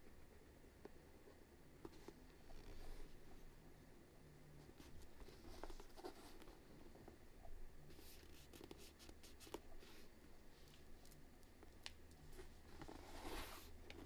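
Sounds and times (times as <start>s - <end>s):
faint light scratching: 1.8s - 3.5s, 4.6s - 7.2s, 7.8s - 11.2s, 12.2s - 14.0s
rustling: 4.6s - 7.2s, 7.8s - 14.0s.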